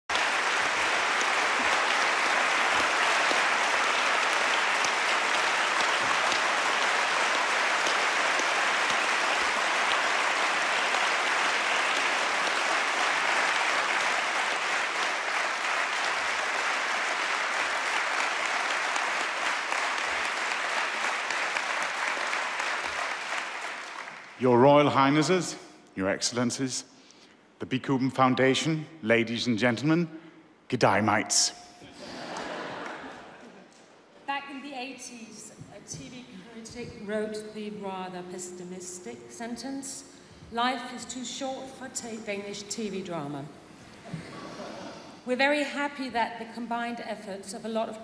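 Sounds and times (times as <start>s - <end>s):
audience applauding: 0.0s - 25.2s, 32.0s - 33.7s.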